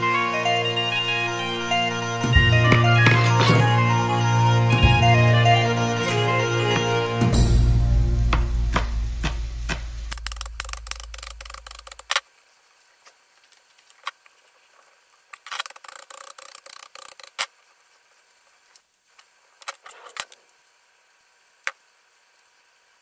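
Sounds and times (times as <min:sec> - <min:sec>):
background music: 0:00.0 - 0:11.3.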